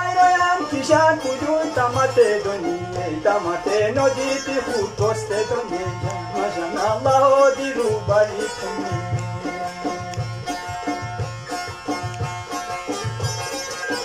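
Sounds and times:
harmonium: 0:00.0 - 0:14.0
plucked lutes: 0:00.0 - 0:14.0.

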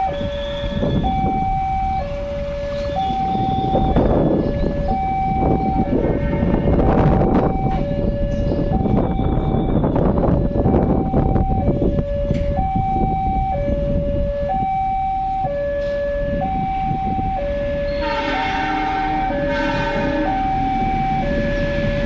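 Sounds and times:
road traffic rumble: 0:00.0 - 0:22.0
two-tone crossing alarm: 0:00.0 - 0:22.0
train horn: 0:05.9 - 0:07.2, 0:17.9 - 0:22.0.

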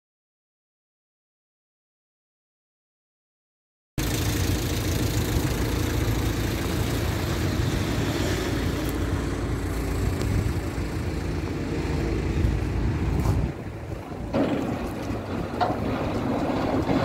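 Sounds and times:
tractor diesel engine idling: 0:04.0 - 0:17.0.

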